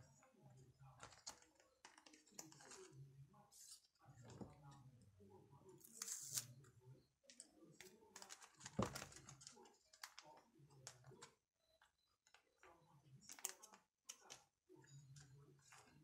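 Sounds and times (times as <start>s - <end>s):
plastic sleeves rustling and clicking: 1.0s - 2.9s, 7.8s - 11.2s.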